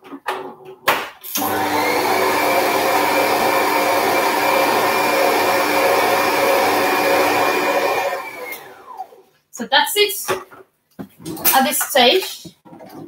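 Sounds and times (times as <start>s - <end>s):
stand mixer motor whine: 1.4s - 9.2s.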